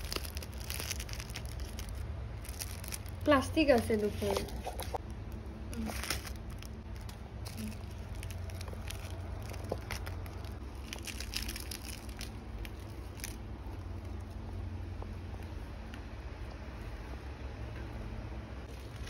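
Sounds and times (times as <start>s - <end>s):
seaweed wrapper crackling: 0.0s - 14.4s, 18.7s - 19.0s
electric fan humming: 0.0s - 19.0s.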